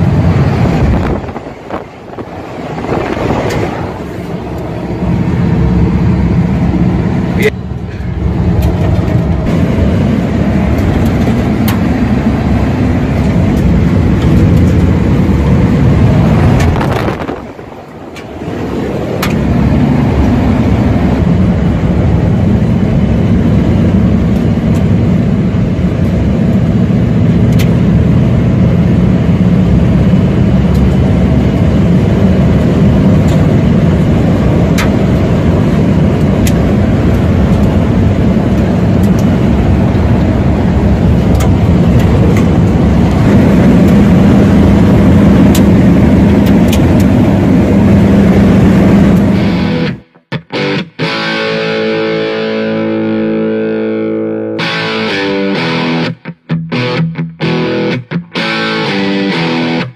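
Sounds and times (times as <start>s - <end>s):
truck engine low rumble: 0.0s - 50.2s.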